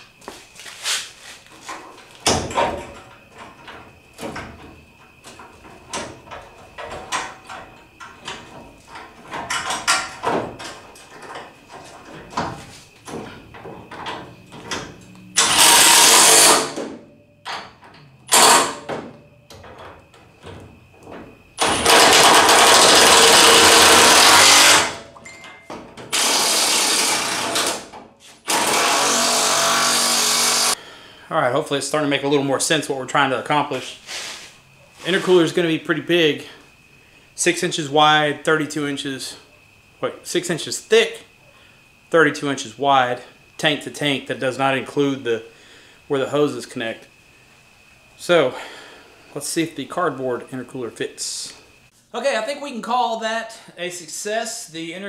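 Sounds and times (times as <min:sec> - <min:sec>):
cordless impact tool running: 0:15.4 - 0:16.7, 0:21.8 - 0:24.9, 0:28.5 - 0:30.8.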